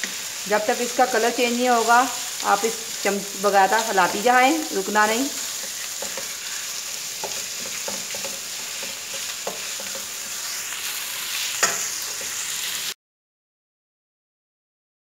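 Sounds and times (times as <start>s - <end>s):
mince and onion sizzling: 0.0s - 13.0s
wooden spatula scraping pan: 2.2s - 12.9s
spatula knocking on pan: 5.6s - 6.4s, 7.2s - 10.1s.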